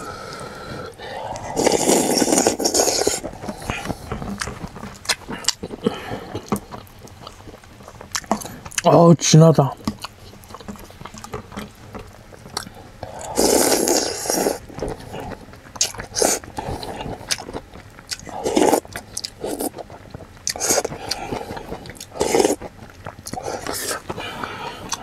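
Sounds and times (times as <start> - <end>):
person slurping soup: 0.0 - 6.8, 12.6 - 17.4, 18.1 - 19.8, 20.5 - 22.7, 23.3 - 25.0
person chewing: 0.1 - 9.0, 9.8 - 25.0.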